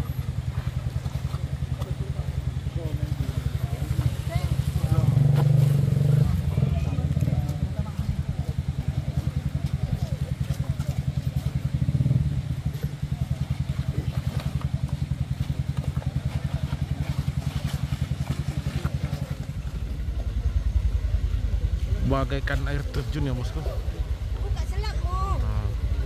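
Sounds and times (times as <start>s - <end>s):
deep low rumble: 0.0s - 26.0s
small motorcycle engine revving: 1.2s - 21.9s.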